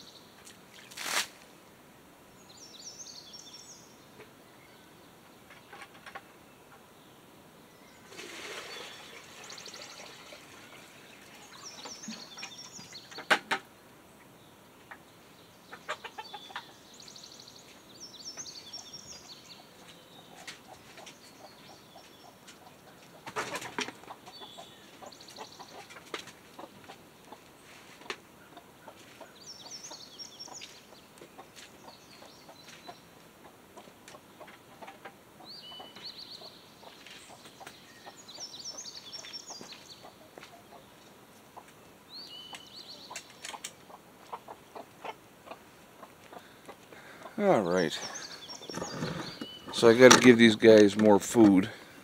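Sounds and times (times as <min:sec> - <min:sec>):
rustling and handling noises: 0:00.4 - 0:01.5
small birds chirping: 0:02.3 - 0:52.0
chickens clucking: 0:08.5 - 0:17.2, 0:18.3 - 0:52.0.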